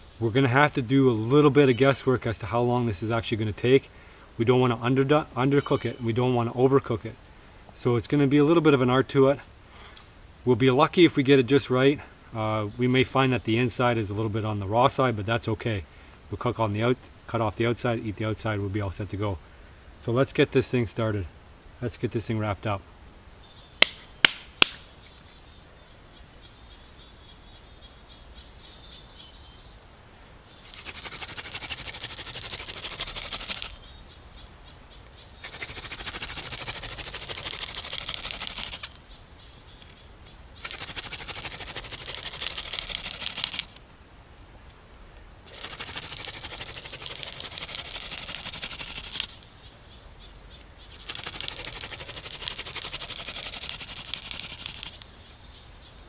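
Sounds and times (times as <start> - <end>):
wooden spindle rasping in hearth board: 30.7 - 33.8, 35.4 - 38.9, 40.6 - 43.7, 45.5 - 49.4, 51.0 - 55.0.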